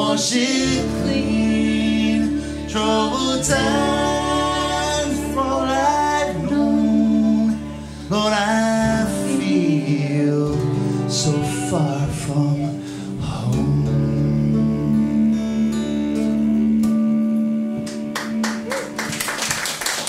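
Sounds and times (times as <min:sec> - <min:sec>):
man and woman singing in harmony: 0:00.0 - 0:15.6.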